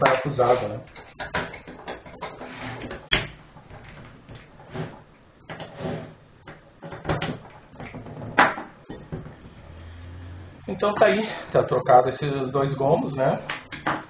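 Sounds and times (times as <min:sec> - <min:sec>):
metal rack scraping on table: 0:02.2 - 0:03.1, 0:04.6 - 0:06.2.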